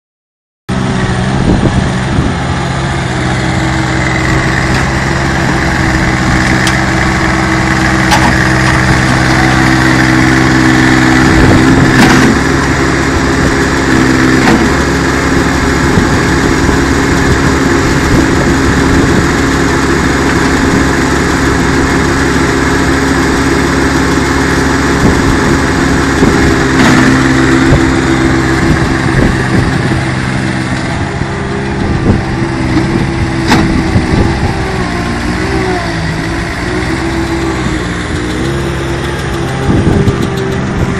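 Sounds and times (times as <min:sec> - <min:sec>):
loader engine running: 0:00.7 - 0:40.9
concrete mixer churning: 0:31.4 - 0:40.9.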